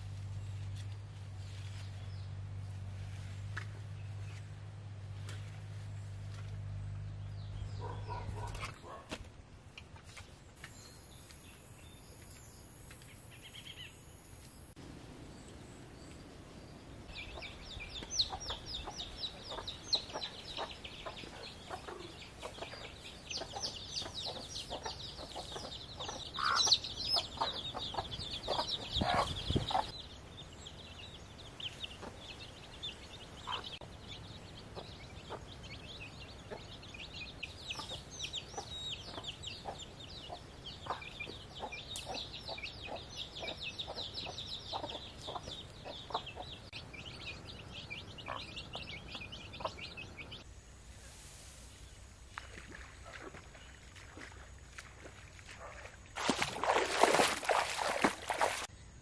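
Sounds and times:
chickens clucking: 17.1s - 30.0s, 33.2s - 33.9s, 34.6s - 50.4s.

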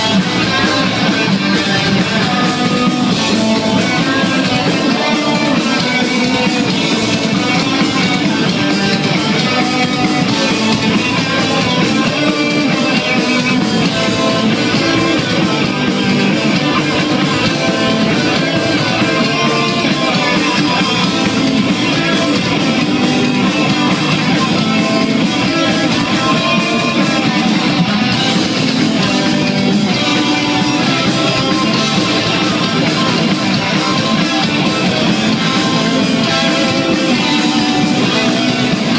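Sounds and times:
heavy metal band playing: 0.0s - 38.9s.

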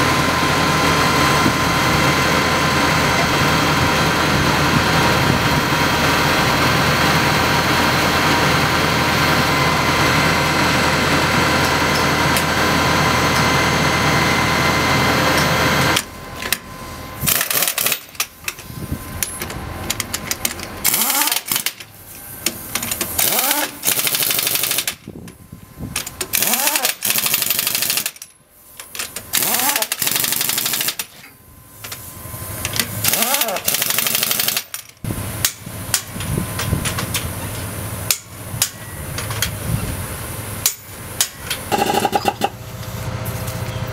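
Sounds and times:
heavy engine running: 0.0s - 43.9s
pneumatic impact wrench rattling: 17.2s - 39.7s, 40.6s - 43.8s.

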